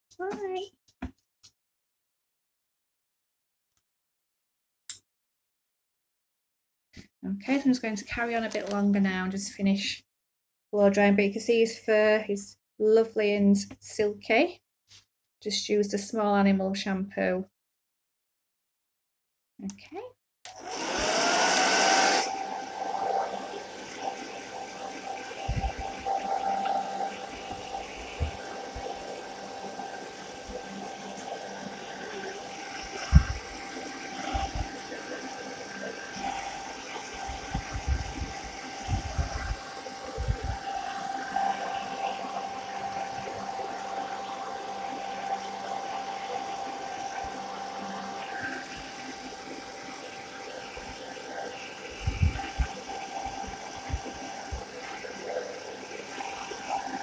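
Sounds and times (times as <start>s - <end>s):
hair dryer running: 20.5s - 57.0s.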